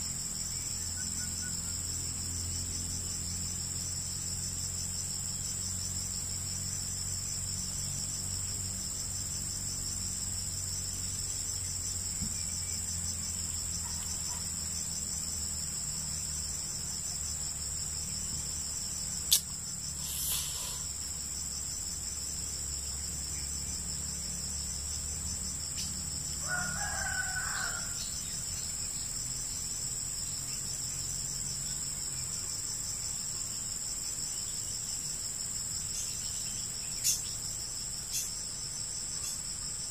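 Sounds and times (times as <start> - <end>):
pulsing insect chorus: 0.0 - 39.9
sharp click: 19.3 - 19.5
faint rooster crowing: 26.4 - 28.4.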